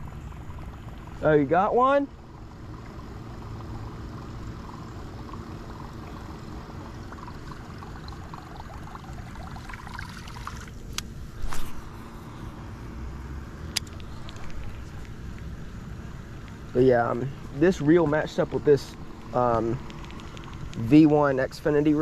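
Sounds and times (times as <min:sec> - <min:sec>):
faint clicking and rustling: 0:18.8 - 0:21.2.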